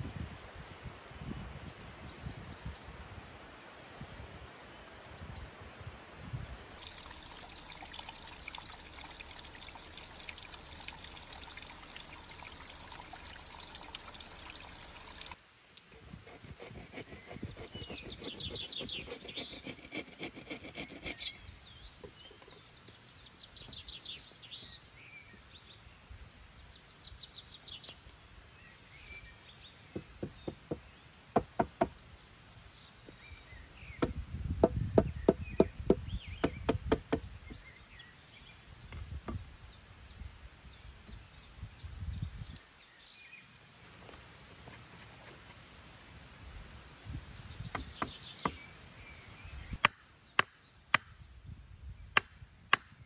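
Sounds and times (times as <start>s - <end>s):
water trickling down rock: 6.8s - 16.0s
wooden knocks of logs: 29.9s - 32.0s, 34.0s - 37.6s, 47.7s - 48.6s, 49.8s - 51.1s, 52.2s - 53.0s.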